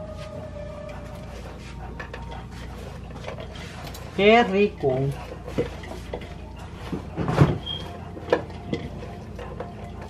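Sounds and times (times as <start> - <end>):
brief squeak: 7.6 - 8.0.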